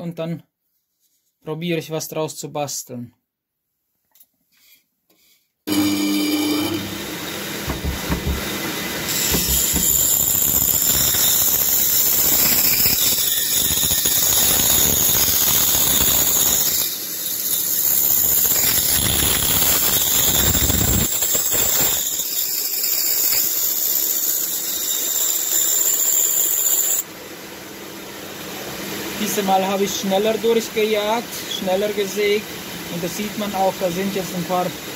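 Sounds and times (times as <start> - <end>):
band saw cutting wood: 5.7 - 27.0.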